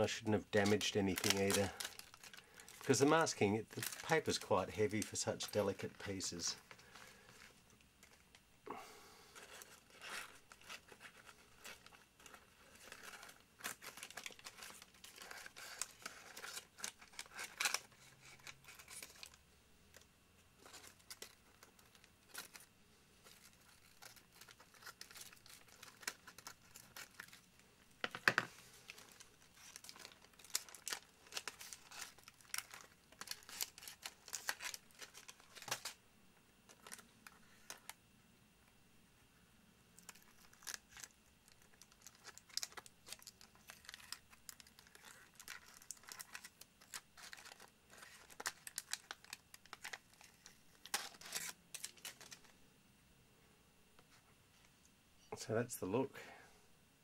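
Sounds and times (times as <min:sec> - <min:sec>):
paper crinkling and tearing: 0:00.0 - 0:08.3, 0:09.3 - 0:20.0, 0:20.6 - 0:27.6, 0:28.5 - 0:36.0, 0:40.0 - 0:52.5.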